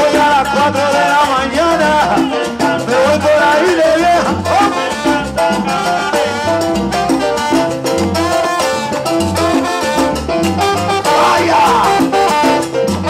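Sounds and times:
bass line: 0:00.0 - 0:13.0
conga and percussion: 0:00.0 - 0:13.0
trombones playing: 0:03.9 - 0:13.0.

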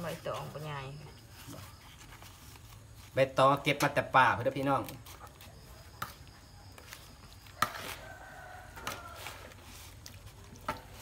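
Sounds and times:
leaves rustling and clicking: 0:00.0 - 0:11.0
rooster crowing quietly: 0:07.4 - 0:10.0.

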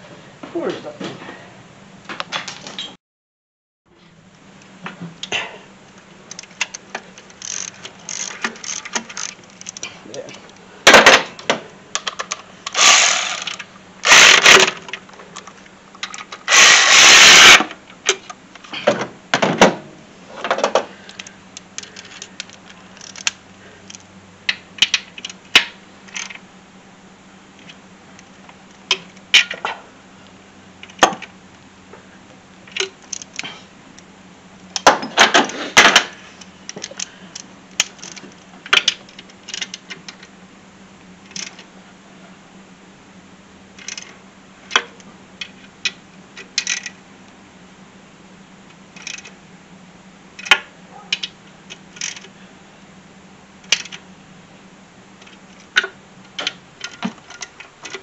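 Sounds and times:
ratcheting wrench clicking: 0:06.3 - 0:09.9, 0:12.0 - 0:18.3, 0:21.2 - 0:24.0, 0:24.8 - 0:26.4, 0:32.7 - 0:33.4, 0:36.7 - 0:40.3, 0:41.3 - 0:41.6, 0:43.8 - 0:44.1, 0:44.7 - 0:47.0, 0:49.0 - 0:49.4, 0:50.4 - 0:50.6, 0:51.2 - 0:52.3, 0:53.6 - 0:54.0.

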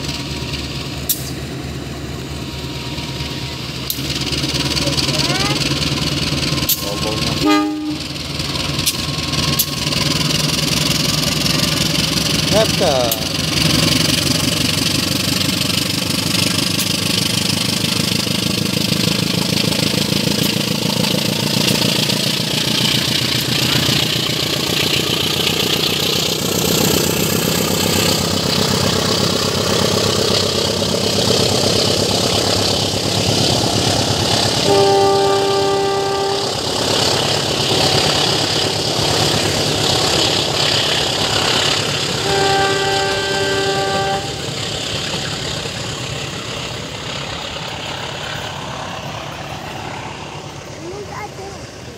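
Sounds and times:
diesel locomotive engine working: 0:00.0 - 0:51.9
train coaches rolling by: 0:00.0 - 0:51.9
locomotive horn chord: 0:06.7 - 0:08.2, 0:34.5 - 0:36.9, 0:42.1 - 0:44.6.

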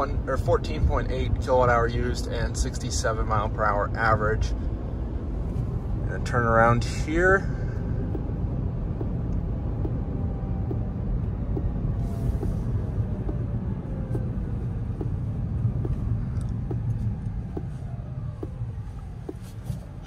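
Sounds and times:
road and tyre rumble: 0:00.0 - 0:20.0
turn signal ticking: 0:07.7 - 0:20.0.

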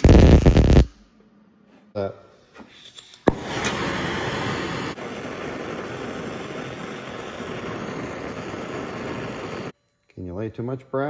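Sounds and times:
torch flame hissing: 0:00.0 - 0:00.9, 0:03.2 - 0:09.8.

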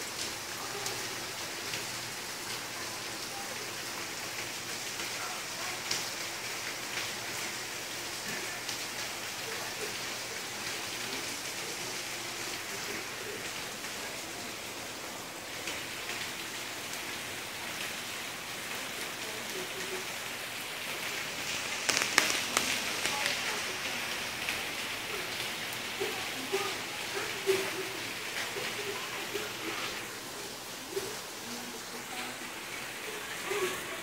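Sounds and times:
heavy rain on pavement: 0:00.0 - 0:34.0
sharp crackles: 0:20.6 - 0:25.8.

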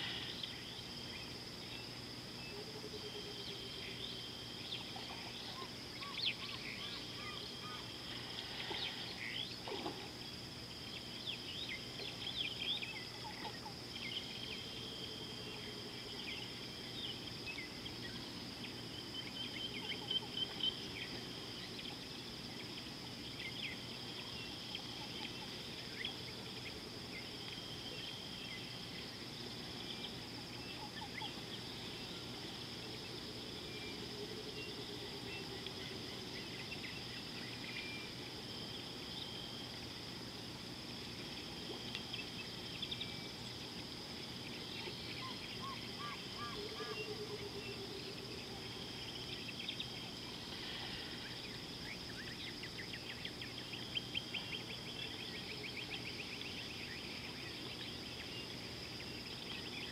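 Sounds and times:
high insect drone: 0:00.0 - 0:59.9
bird calls and chirps: 0:03.8 - 0:07.9.

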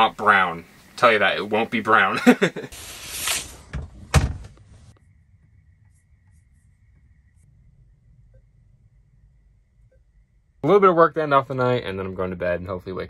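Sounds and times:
knocks and loud thud: 0:03.7 - 0:04.6
faint high whine: 0:04.9 - 0:13.0.

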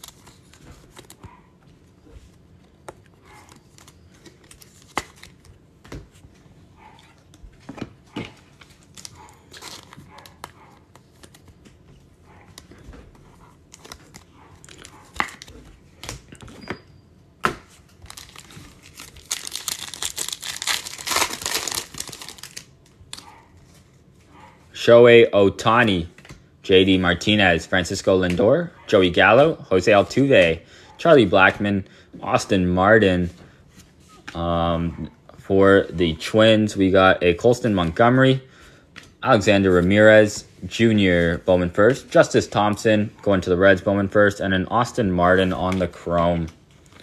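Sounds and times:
foil wrapper crinkling and tearing: 0:08.6 - 0:11.6, 0:18.0 - 0:23.3.

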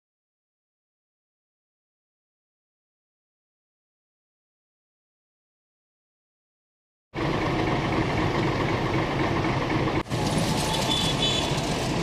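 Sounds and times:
vehicle engine and road noise: 0:07.2 - 0:12.0.

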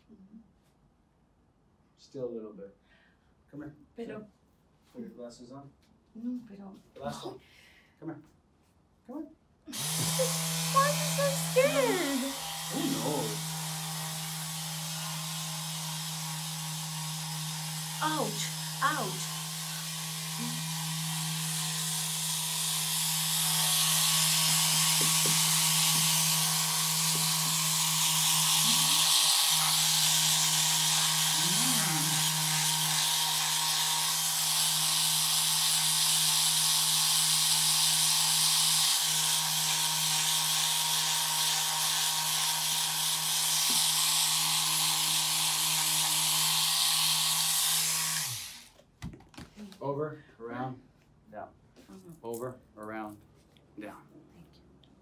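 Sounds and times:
massage gun motor humming: 0:09.7 - 0:48.8.

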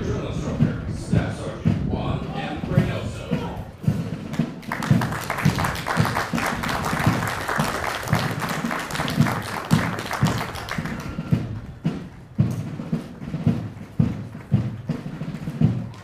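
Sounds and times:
marching band playing a march: 0:00.1 - 0:16.0
spectators applauding: 0:04.6 - 0:11.4.

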